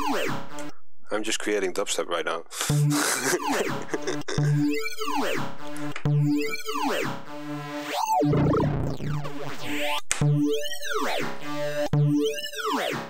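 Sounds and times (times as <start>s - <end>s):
wobbling synth bass: 2.8s - 12.5s.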